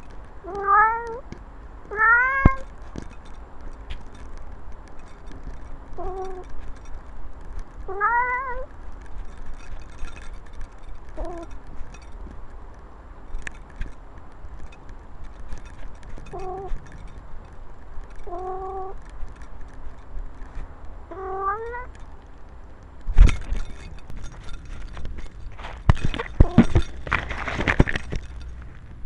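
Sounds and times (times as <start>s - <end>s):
rustling and ticks: 0.0s - 29.0s
cat meowing: 0.5s - 1.2s, 1.9s - 2.6s, 7.9s - 8.7s, 16.3s - 16.8s, 18.2s - 19.0s, 21.1s - 21.9s.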